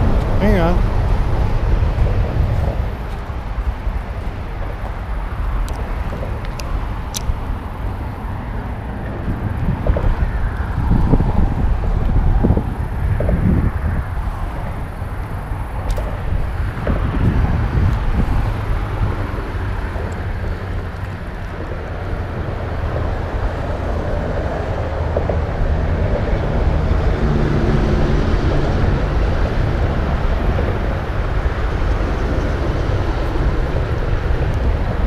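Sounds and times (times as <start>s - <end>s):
highway traffic rumble: 0.0s - 35.0s
wind on microphone: 0.0s - 35.0s.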